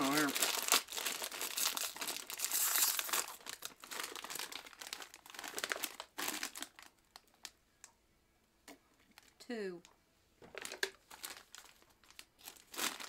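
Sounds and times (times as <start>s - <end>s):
plastic snack bag crinkling: 0.0s - 7.6s, 10.4s - 13.0s.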